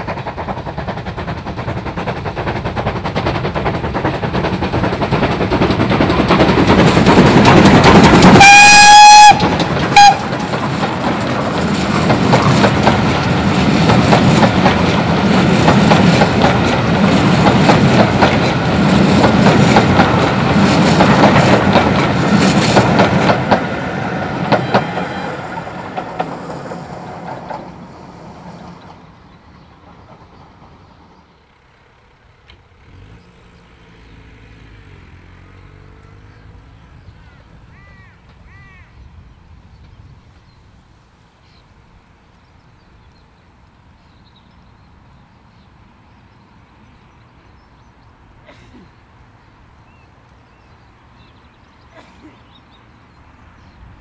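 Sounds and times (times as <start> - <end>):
steam locomotive exhaust beats: 0.0 - 31.6
wheels clattering on rail: 0.0 - 38.5
steam whistle: 8.4 - 10.2.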